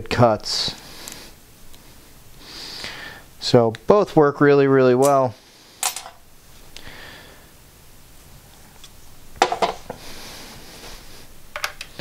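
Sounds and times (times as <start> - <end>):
metal tools clicking and clinking: 5.0 - 5.2, 5.8 - 6.2.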